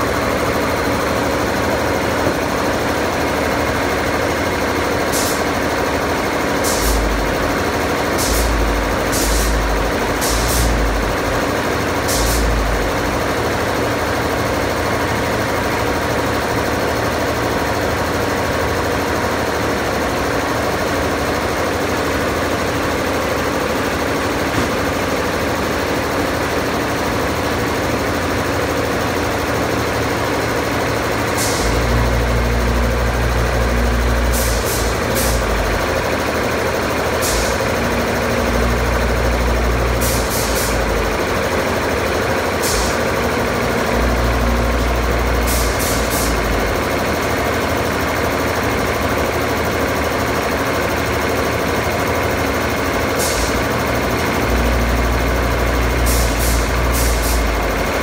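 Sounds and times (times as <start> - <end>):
refrigeration compressor running: 0.0 - 58.0
thumps with a hiss: 10.2 - 10.8.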